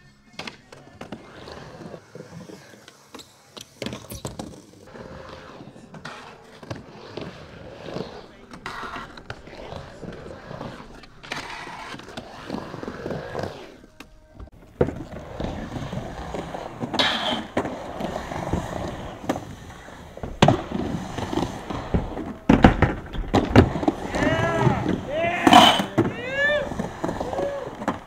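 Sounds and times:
skateboard wheels rolling: 0.2 - 28.0
skateboard knocking on ramp: 14.0 - 28.0.

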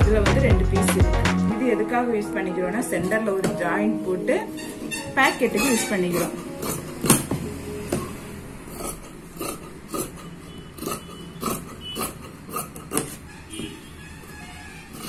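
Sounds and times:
shears snipping fabric: 5.6 - 7.3, 8.8 - 13.2.

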